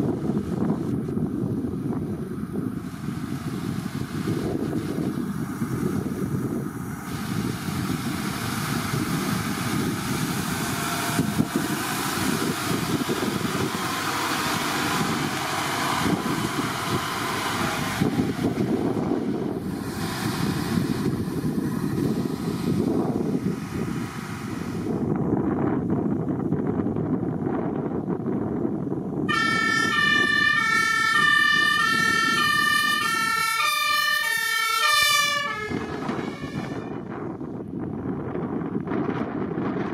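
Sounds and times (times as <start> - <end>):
fire engine diesel engine running: 0.0 - 39.9
hiss: 2.8 - 18.4, 19.6 - 25.0
two-tone fire truck horn: 29.3 - 37.2.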